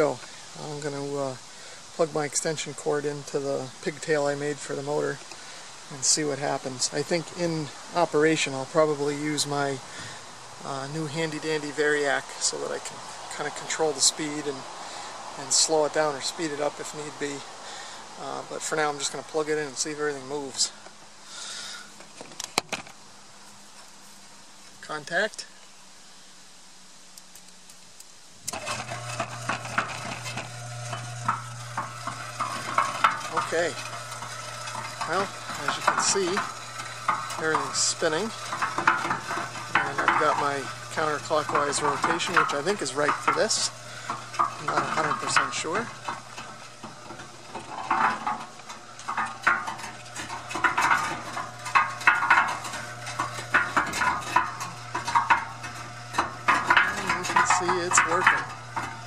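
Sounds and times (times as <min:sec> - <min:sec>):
electric motor humming: 0:28.5 - 0:59.0
mixer drum clinking rattle: 0:28.5 - 0:59.0.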